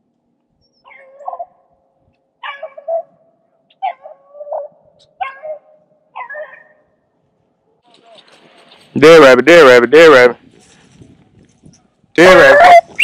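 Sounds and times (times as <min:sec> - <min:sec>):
dog baying: 0:00.9 - 0:01.6.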